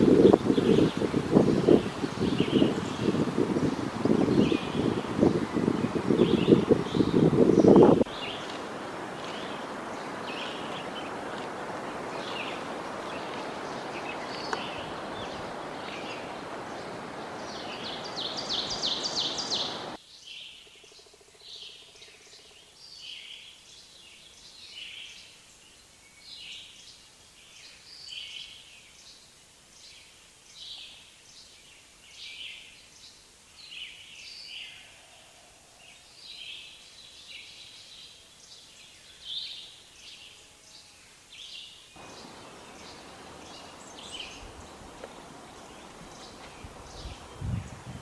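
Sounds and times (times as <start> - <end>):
birds chirping: 0.0 - 20.0, 41.4 - 48.0
steady rushing noise: 42.0 - 48.0.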